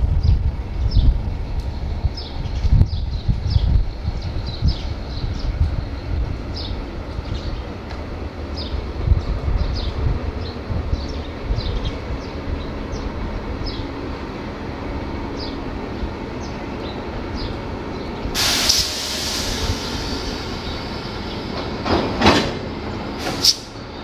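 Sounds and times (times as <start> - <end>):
locomotive engine low rumble: 0.0 - 24.0
loud burst of noise: 18.4 - 23.7.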